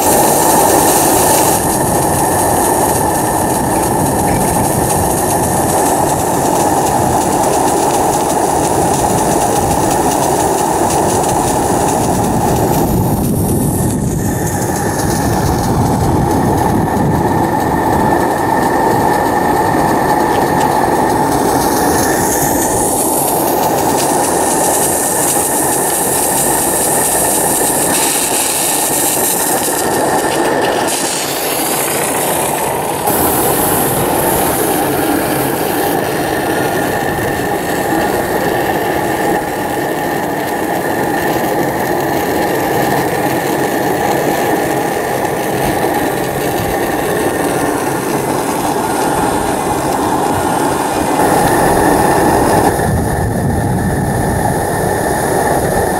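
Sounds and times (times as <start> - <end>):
steam hissing: 0.0 - 55.9.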